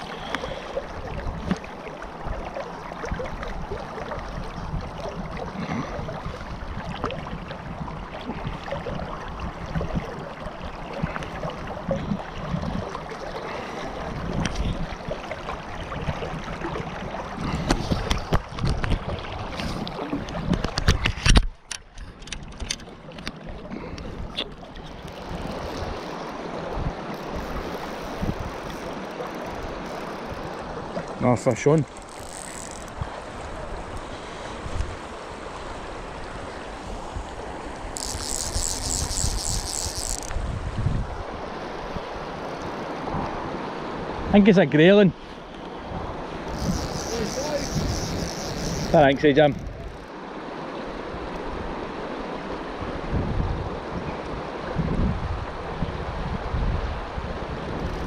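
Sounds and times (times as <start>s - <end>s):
river water rushing: 0.0s - 18.4s, 22.9s - 57.8s
wind buffeting microphone: 23.8s - 44.3s, 45.8s - 50.0s, 52.7s - 58.0s.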